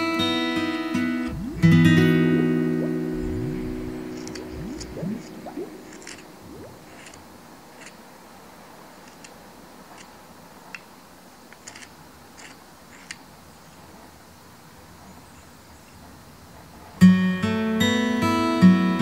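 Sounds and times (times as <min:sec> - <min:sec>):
acoustic guitar music: 0:00.0 - 0:06.5, 0:17.0 - 0:19.0.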